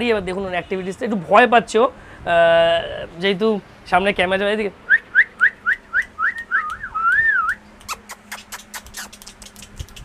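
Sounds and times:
wavering whistle: 0:04.9 - 0:07.6
person whistling chirps: 0:04.9 - 0:09.1
quick sharp clicks: 0:06.3 - 0:10.0.

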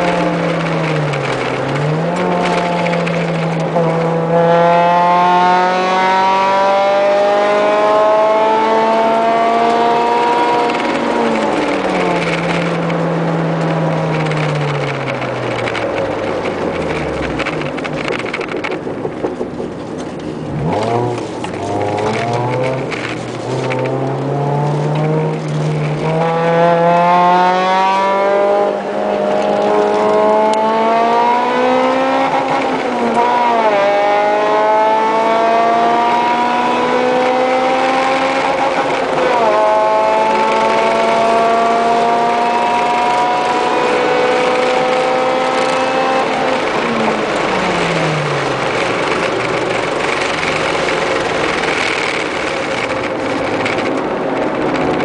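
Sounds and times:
car engine revving at full throttle: 0:00.0 - 0:55.0.

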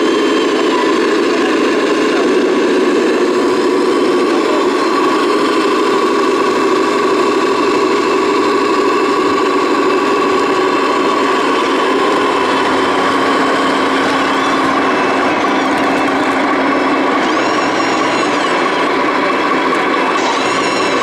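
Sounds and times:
toy truck motor hum and whine: 0:00.0 - 0:21.0.

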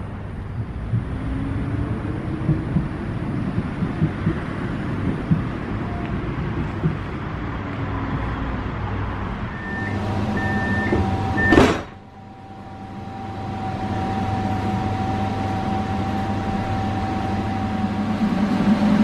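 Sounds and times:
tram door shutting: 0:00.0 - 0:19.0
tram humming: 0:00.0 - 0:19.0
door warning beeps: 0:09.5 - 0:12.1.

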